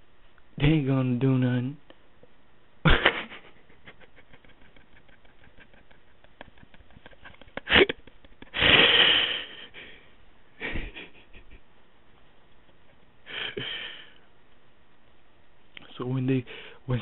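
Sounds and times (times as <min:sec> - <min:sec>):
person sniffing: 0:08.6 - 0:10.0.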